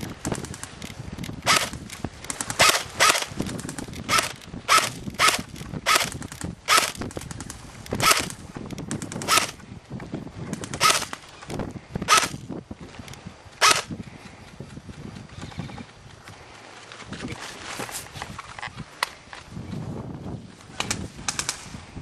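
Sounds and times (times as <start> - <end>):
fainter rapid clicking: 0.0 - 9.6
airsoft rifle firing shots: 1.4 - 9.6, 10.6 - 11.2, 12.0 - 12.5, 13.6 - 13.9.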